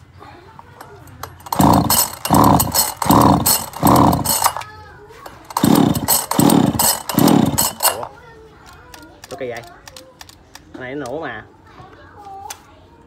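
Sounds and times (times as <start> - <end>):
chainsaw recoil starter yanks: 1.0 - 8.2
chainsaw engine cranking: 1.1 - 8.2.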